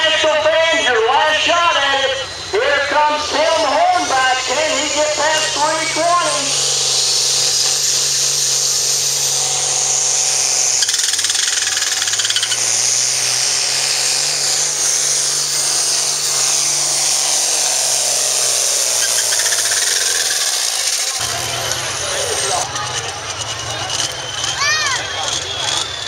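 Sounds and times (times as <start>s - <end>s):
tractor diesel engine at full throttle: 0.0s - 10.9s, 21.0s - 26.0s.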